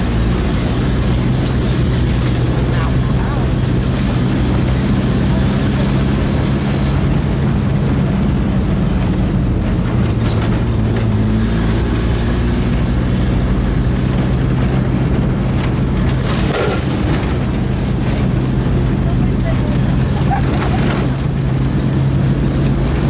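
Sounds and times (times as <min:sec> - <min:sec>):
branches scraping vehicle: 0:00.0 - 0:23.0
vehicle engine running: 0:00.0 - 0:23.0.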